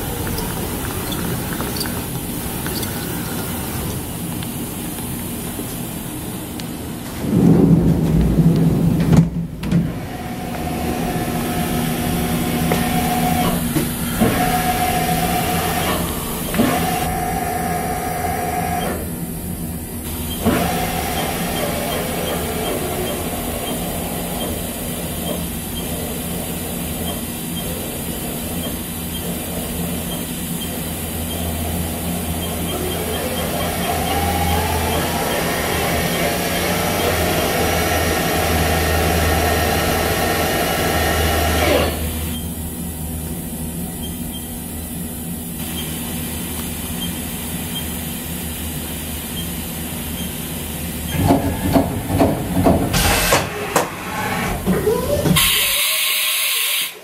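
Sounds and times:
machine hum: 0.0s - 55.8s
low rumble with knocks: 7.2s - 10.7s.

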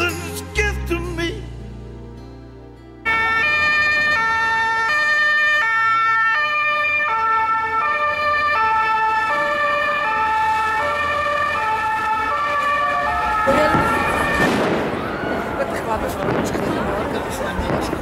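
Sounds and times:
two-tone police siren: 3.1s - 14.7s.

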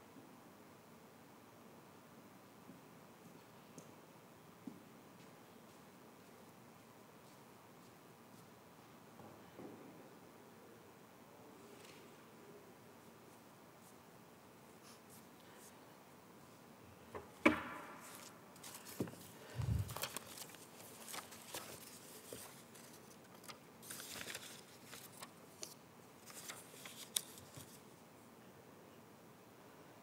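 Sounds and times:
paper-like rustling: 17.9s - 28.0s.

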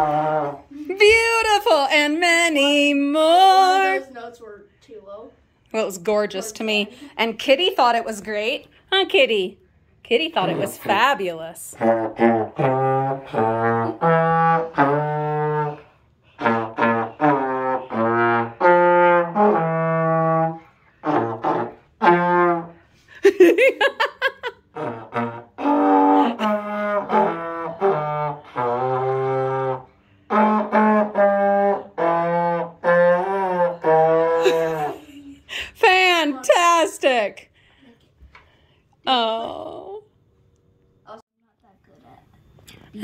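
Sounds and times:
trombone playing slow tune: 0.0s - 0.9s, 11.7s - 22.9s, 24.7s - 35.0s.

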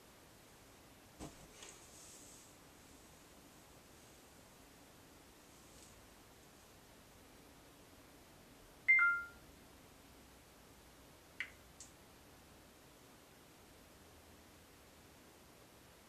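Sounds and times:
phone two-note beep: 8.9s - 9.4s.

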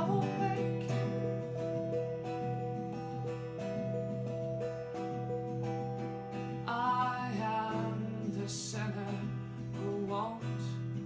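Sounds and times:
electric guitar held notes: 0.0s - 8.3s
acoustic guitar strumming: 0.0s - 11.0s.

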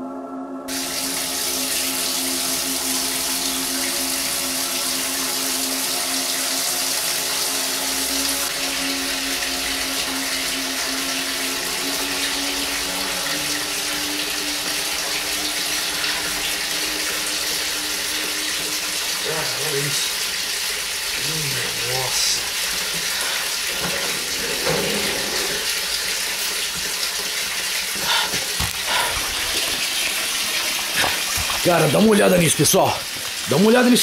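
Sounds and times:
low musical drone: 0.0s - 25.8s
tap water running into sink: 0.7s - 34.0s.

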